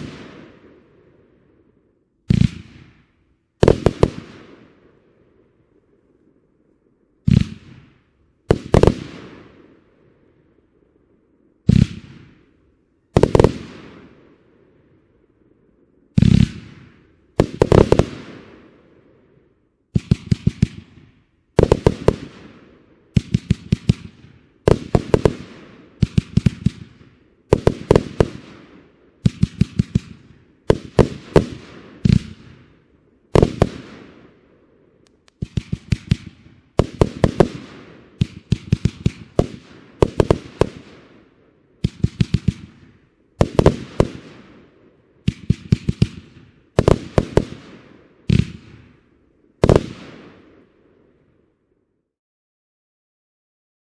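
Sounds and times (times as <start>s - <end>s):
fireworks firing in volleys: 0.0s - 6.0s, 7.2s - 10.5s, 11.4s - 15.1s, 16.0s - 51.4s.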